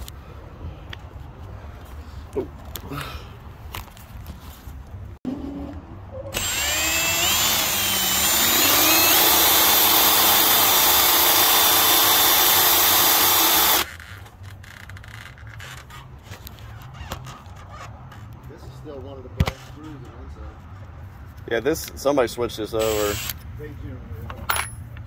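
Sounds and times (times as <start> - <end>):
power drill motor whine: 6.3 - 14.0, 22.8 - 23.4.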